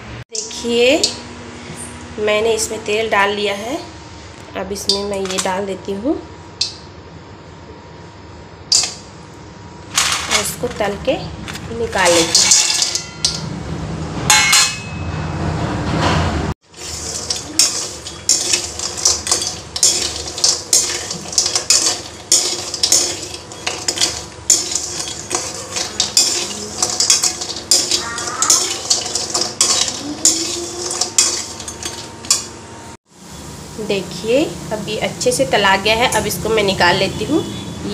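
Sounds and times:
oil sizzling: 16.6 - 35.9
metal spatula scraping a pan: 16.7 - 32.5.

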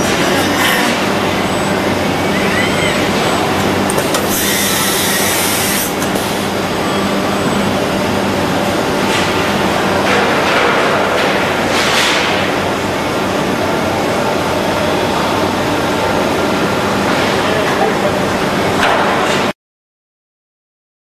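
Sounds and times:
factory machinery noise: 0.0 - 19.6.

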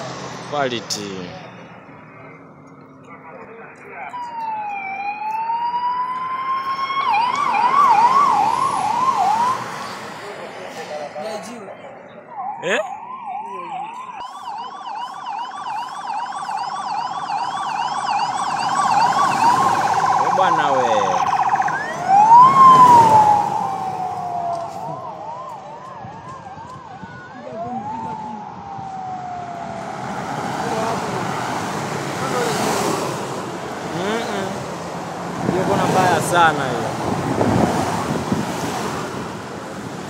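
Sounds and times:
sirens yelping and wailing: 0.0 - 40.0
vehicles passing: 0.0 - 40.0.

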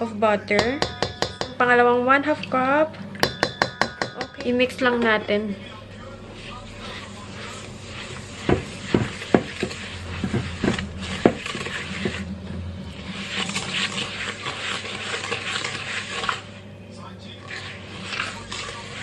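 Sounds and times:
whisk knocking on metal bowl: 0.6 - 1.8, 3.2 - 5.2, 6.8 - 12.2
whisk scraping swish: 6.0 - 19.0.

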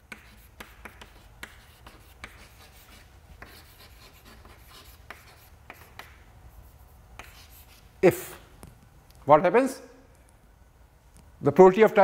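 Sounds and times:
chalk tapping on chalkboard: 0.0 - 7.8
chalk scratching strokes: 0.0 - 8.4.

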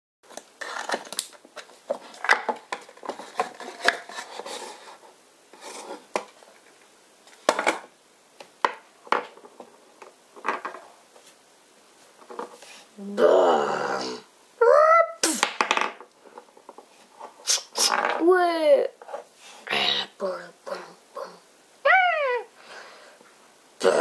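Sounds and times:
plastic toys knocking: 8.6 - 9.7, 10.4 - 10.8, 15.4 - 16.8.

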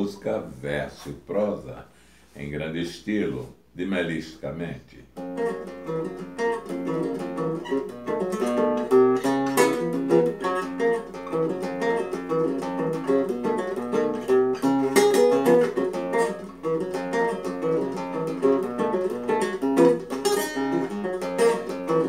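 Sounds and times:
nylon-string acoustic guitar: 5.2 - 22.0.

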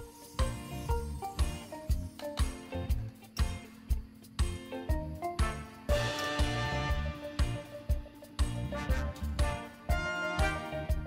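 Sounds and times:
steady drum beat: 0.0 - 11.0
pitched instrument notes: 5.4 - 11.0.

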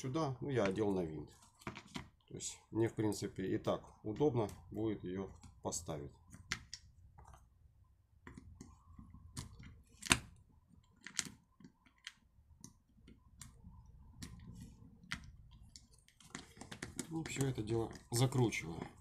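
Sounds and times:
small parts clicking on plastic: 8.3 - 19.0.

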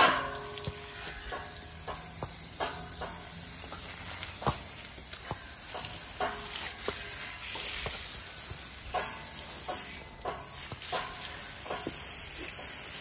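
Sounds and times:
hose nozzle spraying water: 0.0 - 13.0.

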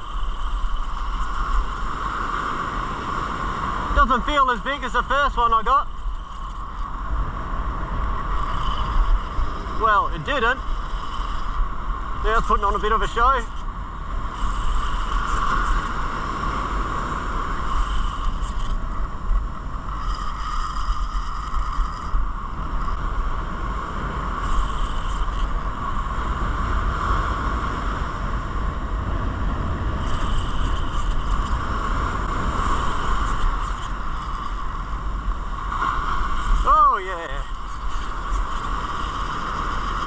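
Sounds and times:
surf breaking on beach: 0.0 - 40.0
wind buffeting microphone: 0.0 - 40.0.

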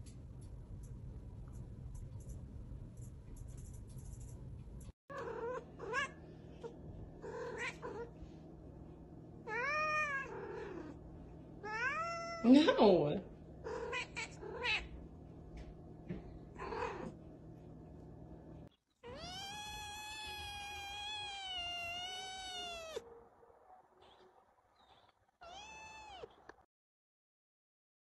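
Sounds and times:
cat meowing: 5.1 - 6.2, 7.2 - 8.1, 9.4 - 11.0, 11.6 - 12.5, 13.7 - 14.9, 19.0 - 23.0, 25.4 - 26.4
kitten long meow: 5.1 - 6.2, 9.5 - 10.9, 11.6 - 12.5, 19.0 - 23.0, 25.4 - 26.3.

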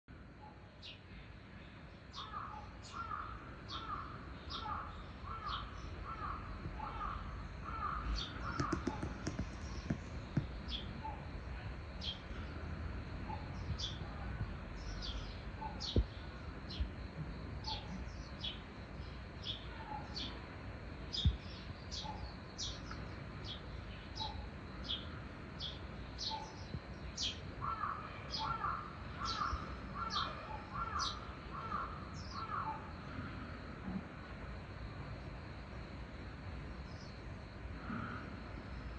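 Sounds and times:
small birds chirping: 0.4 - 33.6
sharp knocks: 8.4 - 10.7.

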